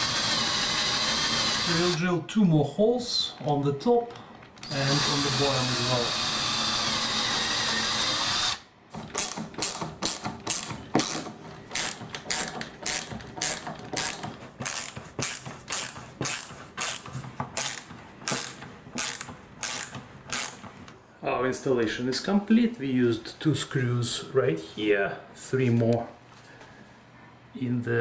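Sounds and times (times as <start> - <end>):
power drill running: 0.0 - 2.0, 4.6 - 20.6
ratchet-like mechanical clicks: 7.3 - 20.6.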